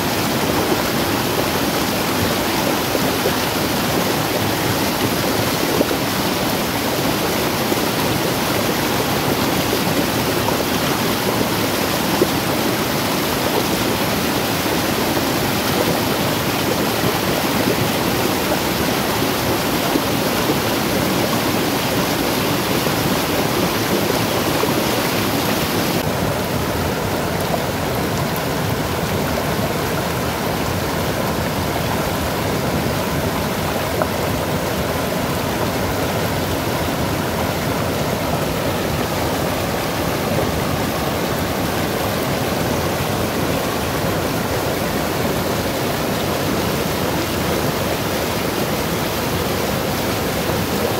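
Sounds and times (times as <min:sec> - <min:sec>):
floodwater rushing over waterfall: 0:00.0 - 0:50.9.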